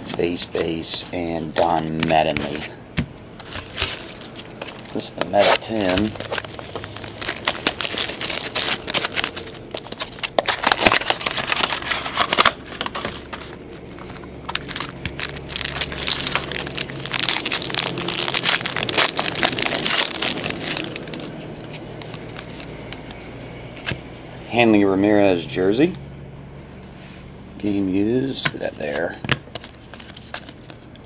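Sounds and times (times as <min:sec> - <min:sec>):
foil wrapper crinkling: 0:03.4 - 0:23.1.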